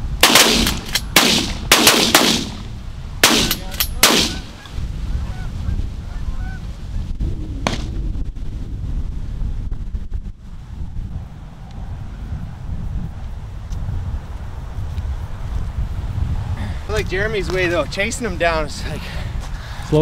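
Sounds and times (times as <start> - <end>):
wind buffeting microphone: 0.0 - 20.0
shotgun blasts: 0.2 - 4.6, 7.6 - 8.0
geese honking: 4.3 - 6.6.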